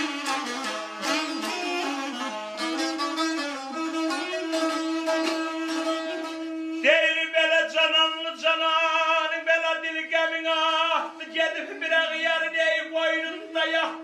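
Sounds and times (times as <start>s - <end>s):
balaban melody: 0.0s - 6.8s.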